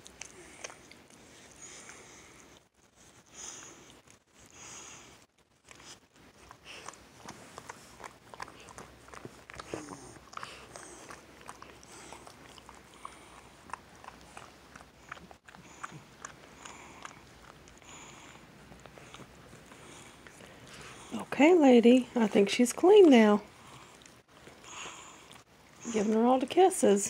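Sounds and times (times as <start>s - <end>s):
dog licking: 0.0s - 21.3s.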